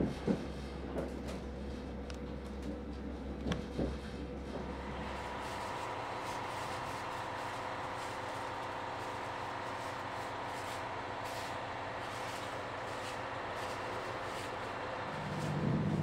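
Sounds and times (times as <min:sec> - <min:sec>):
diesel railcar engine idling: 0:00.0 - 0:16.0.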